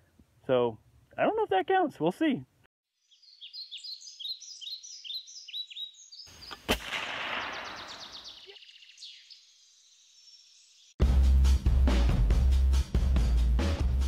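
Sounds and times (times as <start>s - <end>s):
birds chirping: 3.0s - 11.0s
gunshot-like crack with echo: 6.7s - 8.3s.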